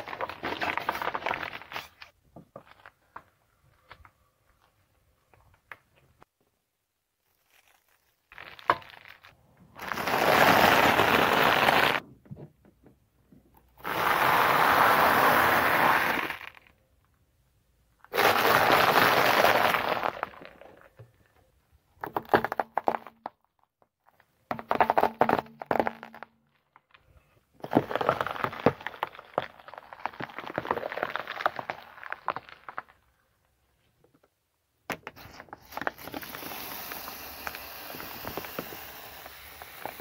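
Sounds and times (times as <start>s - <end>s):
car tyre crushing brittle things: 0.0s - 3.2s, 7.2s - 12.0s, 27.6s - 33.1s, 35.0s - 40.0s.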